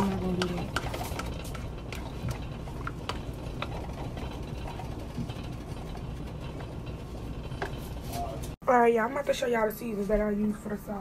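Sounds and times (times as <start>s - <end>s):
sauce cooking rumble: 0.0s - 8.5s.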